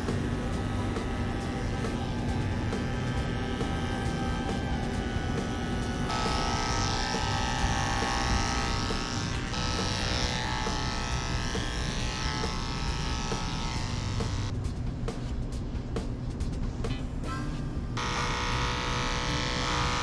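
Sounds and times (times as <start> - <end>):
electric clippers running: 0.0 - 14.5, 18.0 - 20.0.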